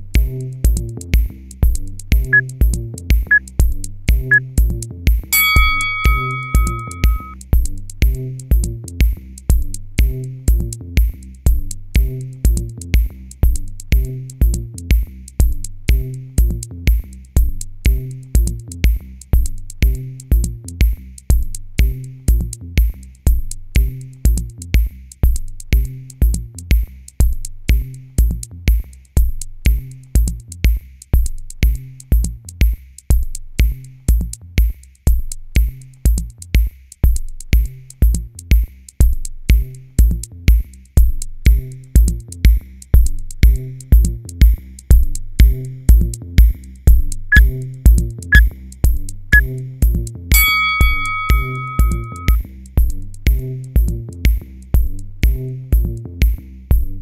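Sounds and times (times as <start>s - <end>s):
electronic music with drum-machine beat: 51.2s - 52.4s.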